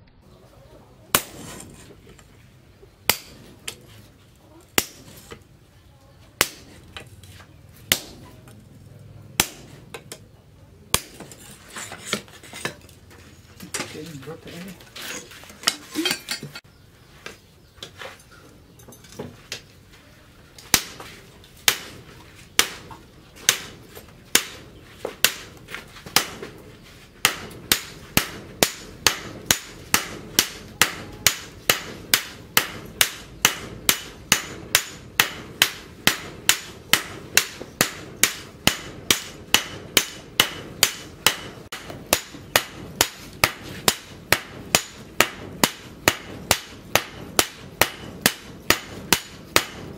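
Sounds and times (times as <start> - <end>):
hammers striking metal on anvil: 3.1 - 3.5, 4.8 - 5.1, 6.4 - 6.8, 7.9 - 8.2, 9.4 - 10.2, 10.9 - 11.3, 22.6 - 24.6, 26.2 - 26.5, 27.2 - 49.9.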